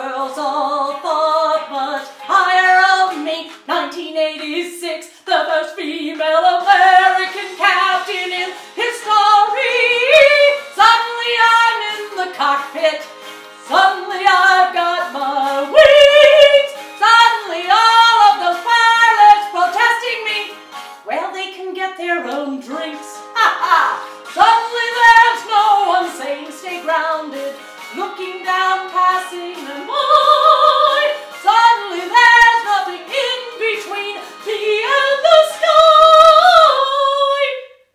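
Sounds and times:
woman singing unaccompanied: 0.0 - 13.1, 13.7 - 37.8.

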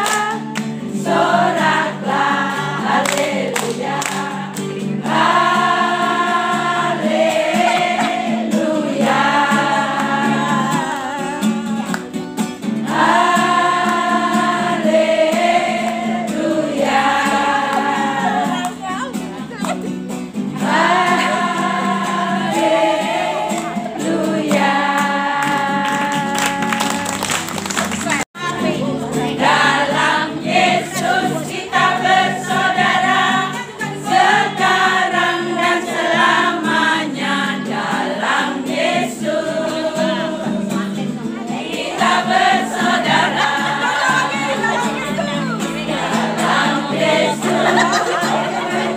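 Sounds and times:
women singing together: 0.0 - 19.8, 20.4 - 48.9.

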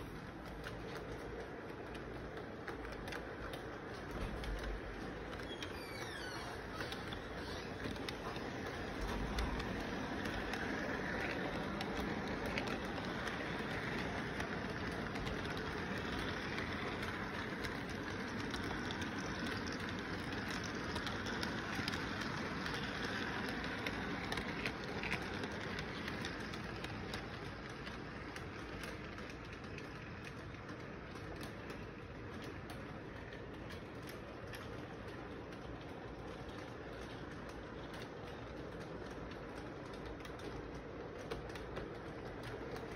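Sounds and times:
toy train rattling on rails: 0.0 - 42.9.

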